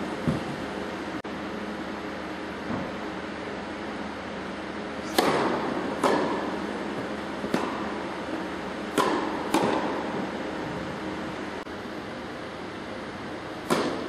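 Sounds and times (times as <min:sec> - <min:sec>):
steady hum: 0:00.0 - 0:14.0
tennis ball struck and bouncing: 0:05.0 - 0:10.4, 0:13.6 - 0:14.0.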